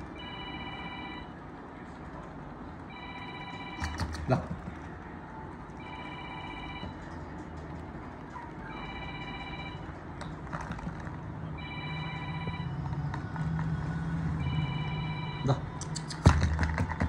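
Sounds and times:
low steady hum: 0.0s - 17.0s
electronic phone ringtone chime: 0.2s - 1.4s, 2.9s - 4.0s, 5.8s - 7.0s, 8.7s - 9.9s, 11.6s - 12.8s, 14.4s - 15.5s.

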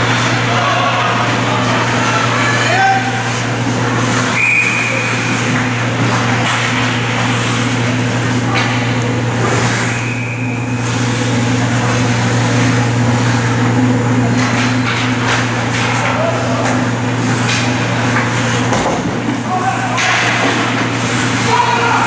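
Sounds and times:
steady low hum: 0.0s - 22.0s
sticks and puck clattering: 1.2s - 10.0s, 14.3s - 22.0s.

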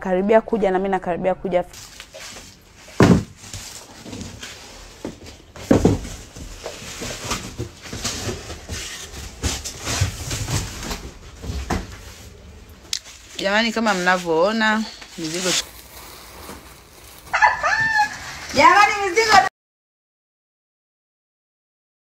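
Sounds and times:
cardboard boxes knocking and rustling: 1.8s - 12.3s
cardboard box thumps: 2.9s - 4.4s, 5.0s - 12.0s.

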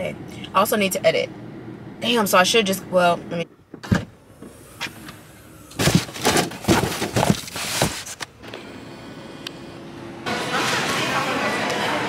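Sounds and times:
steady low hum: 0.0s - 10.5s
phone handling bumps and rustles: 5.8s - 8.3s.

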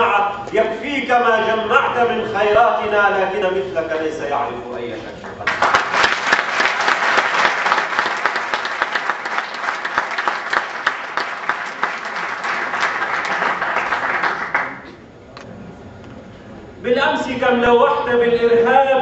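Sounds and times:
audience applauding: 5.4s - 15.0s.

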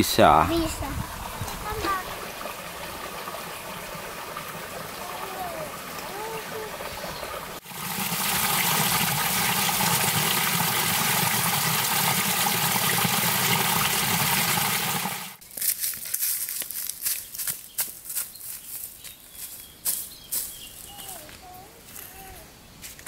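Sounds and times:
water running over rocks: 0.2s - 15.4s
footsteps on dry leaves: 15.4s - 23.0s.

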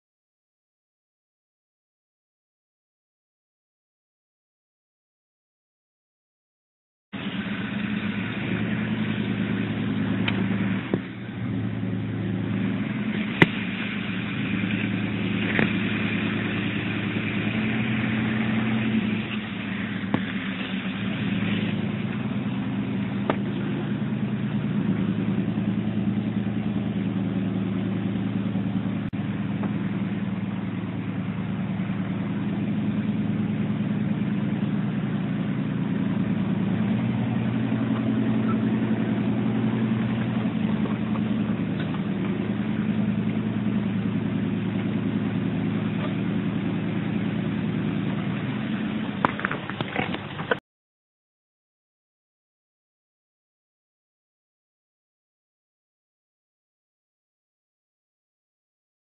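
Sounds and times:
truck engine running: 7.2s - 50.6s.

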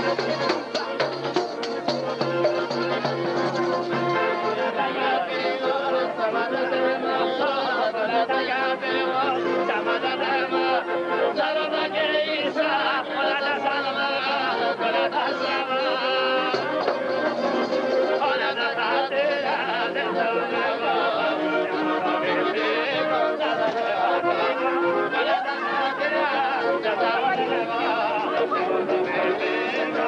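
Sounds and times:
accordion: 0.0s - 30.0s
violin: 0.0s - 30.0s
man singing folk song: 3.9s - 17.2s, 18.0s - 30.0s.

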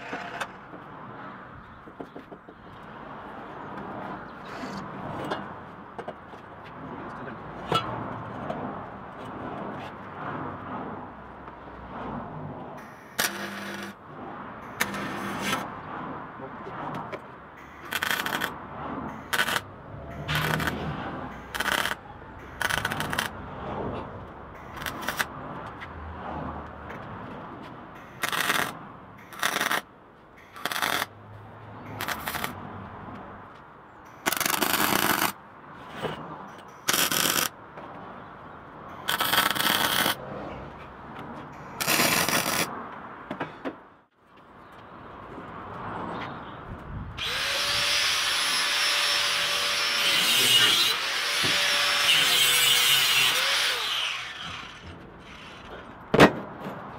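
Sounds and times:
welder arcing: 12.8s - 14.0s, 14.7s - 15.6s, 17.6s - 18.6s, 19.2s - 23.3s, 24.6s - 25.3s, 28.0s - 29.8s, 30.4s - 31.1s, 31.9s - 32.6s, 34.2s - 35.4s, 36.8s - 37.5s, 39.0s - 40.2s, 41.7s - 42.7s
angle grinder whining: 47.2s - 55.6s.

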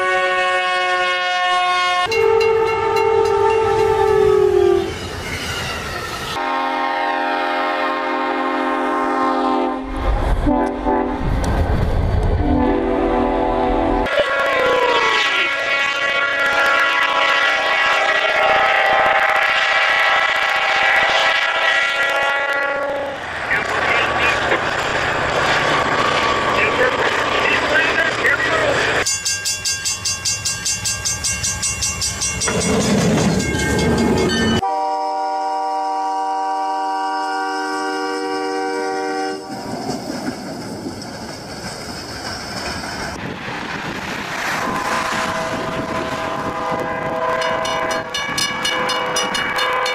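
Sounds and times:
locomotive air horn blasts: 0.0s - 5.0s, 6.4s - 11.2s, 12.4s - 23.2s, 34.6s - 39.6s, 44.6s - 48.1s
train passing with low rumble: 0.0s - 49.9s
train rushing through snow: 2.0s - 49.9s.

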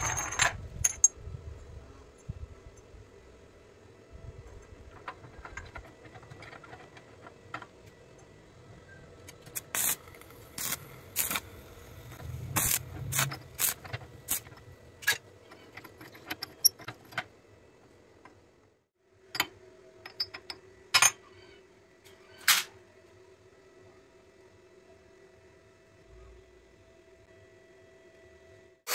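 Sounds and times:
steel parts clinking: 0.0s - 1.1s, 9.4s - 17.2s.

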